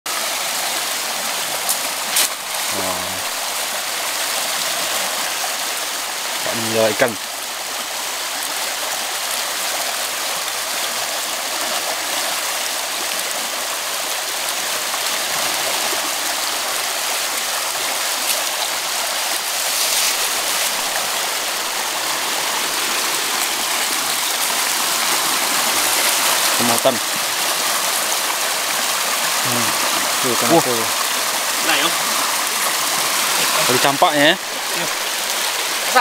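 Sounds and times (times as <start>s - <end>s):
river rushing around rocks: 0.1s - 36.0s.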